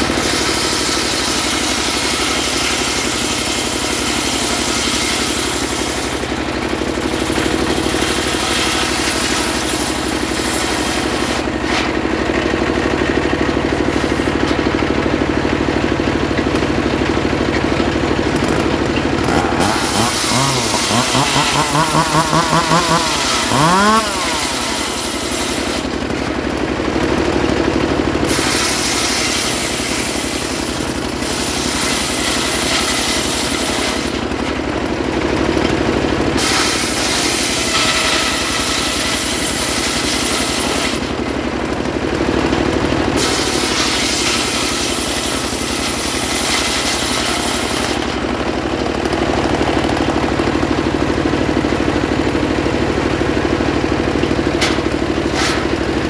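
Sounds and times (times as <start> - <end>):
engine running: 0.0 - 56.0
saw blade spinning free: 18.2 - 26.3
saw blade cutting hiss: 19.2 - 25.9.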